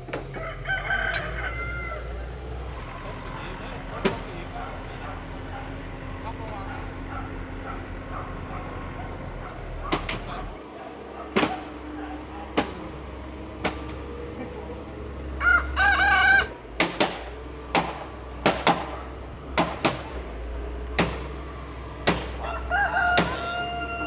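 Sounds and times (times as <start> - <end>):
rooster crowing: 0.2 - 3.4, 15.2 - 16.7, 22.3 - 24.0
hammer blows on timber beams: 2.7 - 14.6, 15.4 - 24.0.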